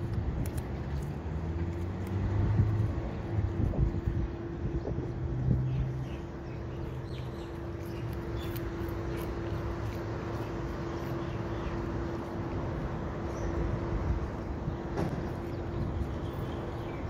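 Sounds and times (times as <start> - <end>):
cat chewing crunchy food: 0.0 - 3.0, 7.5 - 12.6.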